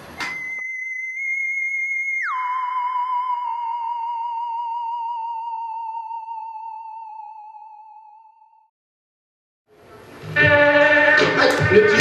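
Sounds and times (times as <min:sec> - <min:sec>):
wavering electronic tone: 0:00.2 - 0:08.7.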